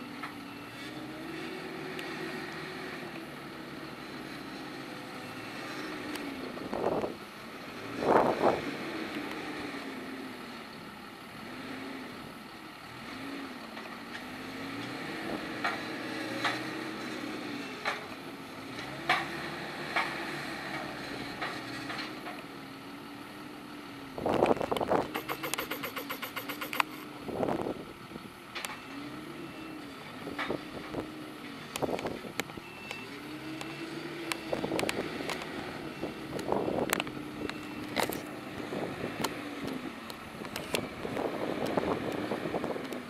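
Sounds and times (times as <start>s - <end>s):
diesel engine revving: 0.0s - 32.4s, 33.0s - 43.0s.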